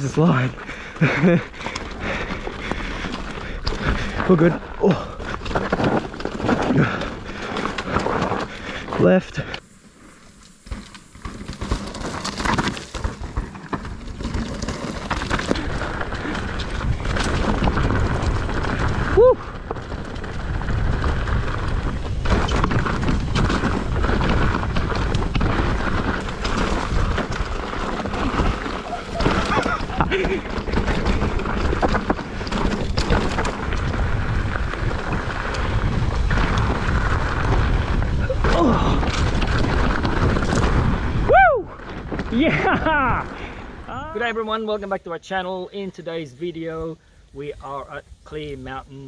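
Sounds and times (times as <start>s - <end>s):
bike knocking and rattling: 0.0s - 43.9s
bike tyres rumbling on dirt: 0.0s - 49.0s
wind on microphone: 15.5s - 44.2s.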